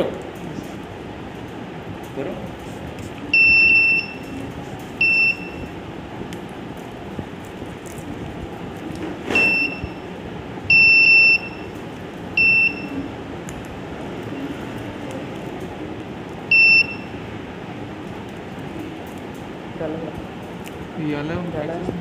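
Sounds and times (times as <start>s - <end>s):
high-pitched buzzer beeps: 3.3s - 4.3s, 5.0s - 5.7s, 9.3s - 10.0s, 10.7s - 11.7s, 12.4s - 13.0s, 16.5s - 17.1s.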